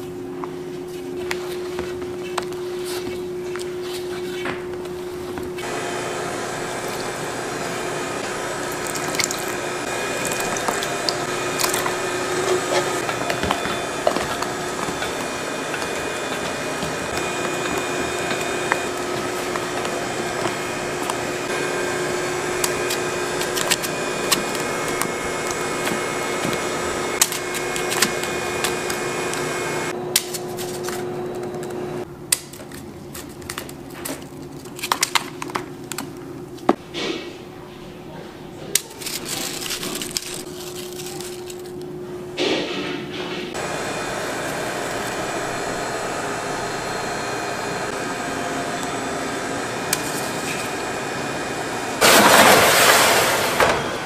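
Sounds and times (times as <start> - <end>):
steady motor hum: 0.0 - 32.1, 38.6 - 54.0
batter squishing: 6.5 - 29.6
spatula scraping metal bowl: 8.6 - 21.3.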